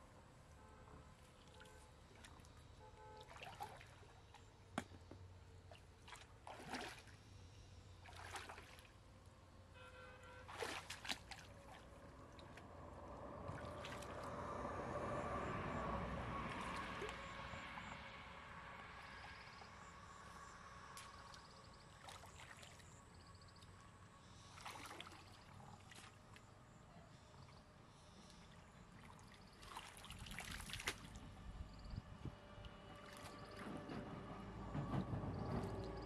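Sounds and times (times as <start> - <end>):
person wading through water: 1.3 - 4.5, 5.6 - 9.0, 10.2 - 14.5, 16.4 - 17.4, 20.8 - 23.5, 24.3 - 31.4.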